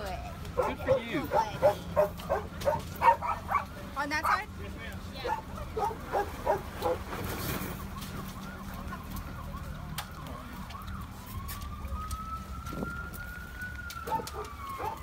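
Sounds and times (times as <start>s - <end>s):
emergency siren: 5.0s - 15.0s.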